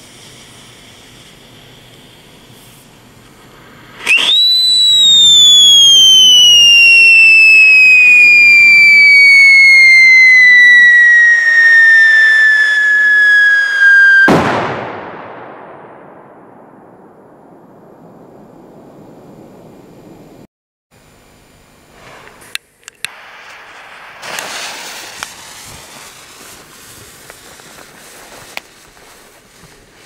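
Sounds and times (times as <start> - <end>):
firework whistle: 0.0 - 15.5, 21.9 - 30.0
firework bang: 3.9 - 20.2, 23.1 - 29.3.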